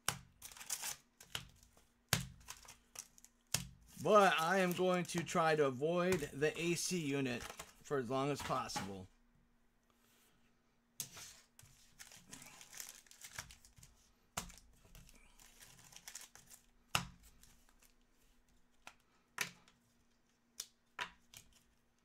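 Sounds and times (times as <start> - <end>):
foil wrappers crinkling: 0.4 - 1.1, 3.9 - 5.5, 11.8 - 13.9, 14.5 - 16.7.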